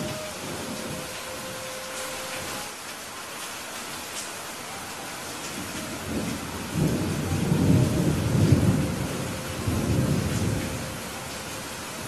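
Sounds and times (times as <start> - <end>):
steady rain hiss: 0.0 - 12.0
thunder rumbling: 5.6 - 12.0.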